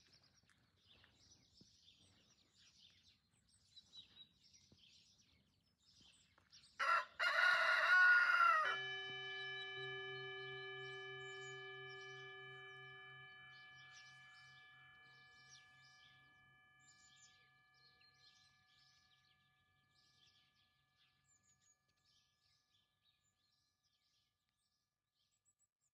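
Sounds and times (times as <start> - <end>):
rooster crowing: 6.8 - 13.3
ringing tone: 7.2 - 21.6.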